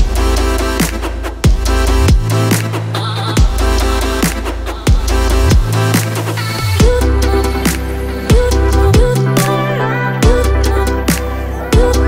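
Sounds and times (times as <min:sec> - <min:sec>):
electronic music with heavy bass: 0:00.0 - 0:12.0.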